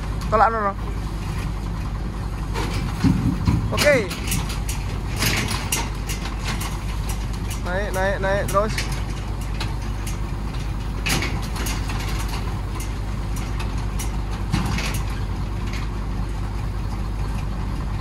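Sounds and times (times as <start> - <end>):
engine idling: 0.0 - 18.0
short knocks: 2.6 - 7.4.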